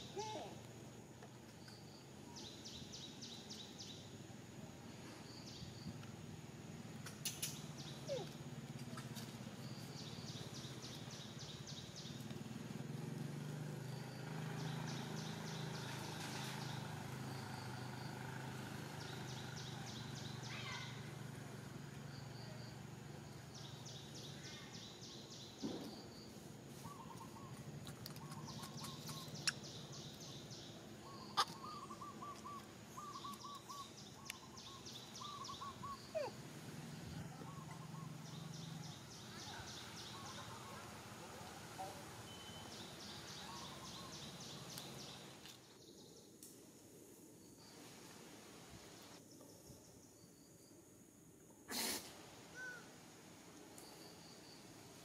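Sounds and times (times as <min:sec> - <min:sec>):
bird chirping calls: 0:13.9 - 0:21.3, 0:23.3 - 0:46.4.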